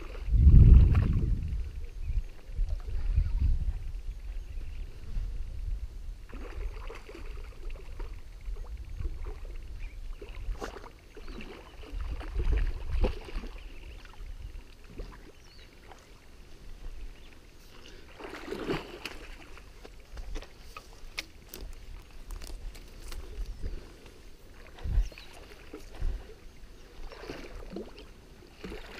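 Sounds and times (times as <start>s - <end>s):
wind rumbling on microphone: 0.0s - 15.6s, 19.4s - 27.9s
fish thrashing and splashing: 18.1s - 20.6s, 28.6s - 28.9s.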